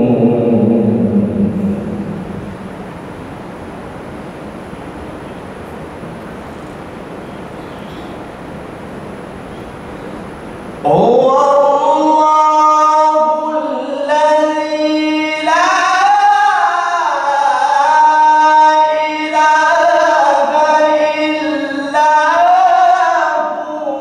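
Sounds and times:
man reciting in melodic chant: 0:00.0 - 0:02.1, 0:10.8 - 0:24.0.

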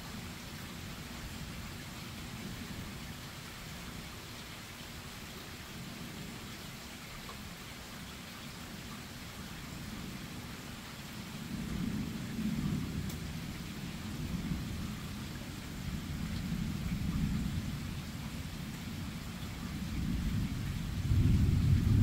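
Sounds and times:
steady rain: 0:00.0 - 0:22.0
thunder rumbling: 0:19.7 - 0:22.0.

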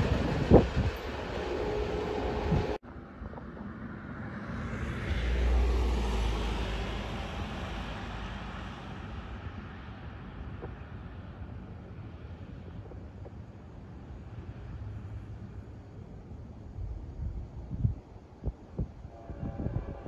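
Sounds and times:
car passing: 0:01.5 - 0:12.6.

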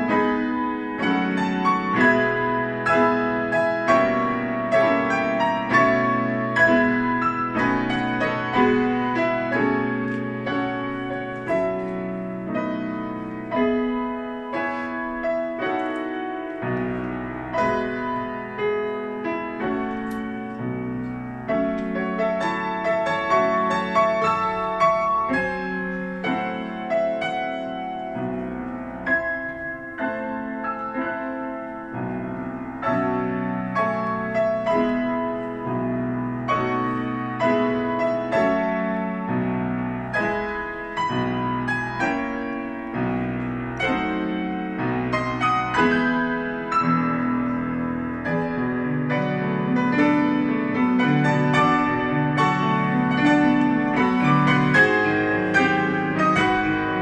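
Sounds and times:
grand piano classical piece: 0:00.0 - 0:57.0.

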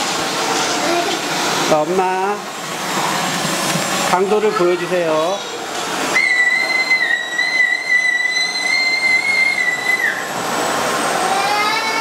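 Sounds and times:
vacuum cleaner running: 0:00.0 - 0:12.0
rising motor whine: 0:05.2 - 0:12.0
high whistle: 0:06.1 - 0:10.3.

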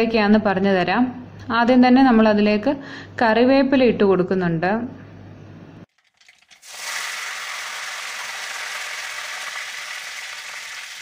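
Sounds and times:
leaves crackling in hot oil: 0:05.9 - 0:11.0
oil sizzling: 0:05.9 - 0:11.0.

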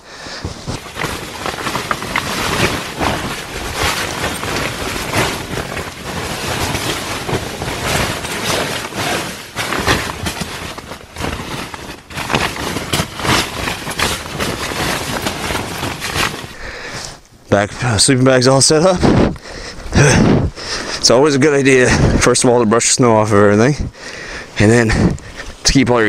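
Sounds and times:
nylon sleeping bag rustling: 0:00.0 - 0:17.2, 0:18.7 - 0:21.2.

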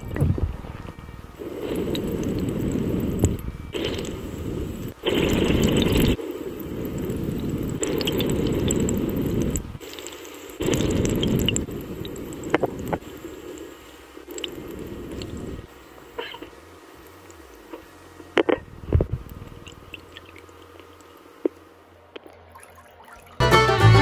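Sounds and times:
water sloshing in a plastic tub: 0:22.2 - 0:23.4.

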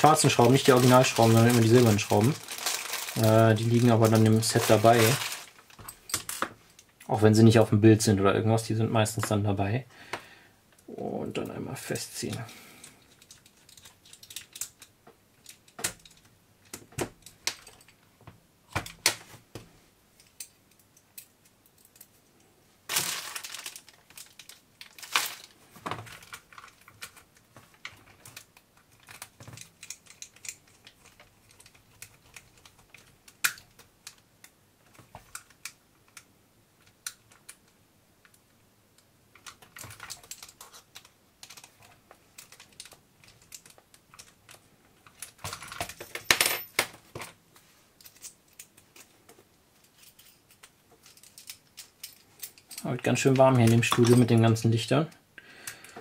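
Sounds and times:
handling noises: 0:00.0 - 0:07.1, 0:22.9 - 0:36.2, 0:39.3 - 0:54.6.

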